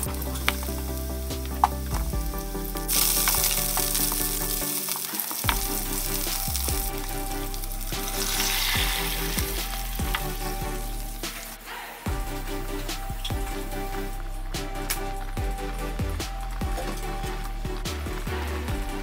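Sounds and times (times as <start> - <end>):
garlic sizzling in oil: 2.7 - 11.6.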